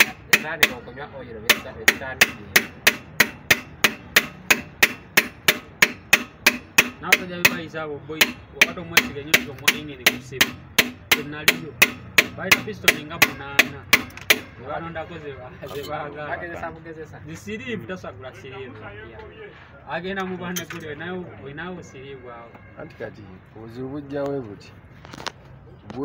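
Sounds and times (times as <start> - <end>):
hammer tapping piston: 0.0 - 0.9, 1.5 - 14.6.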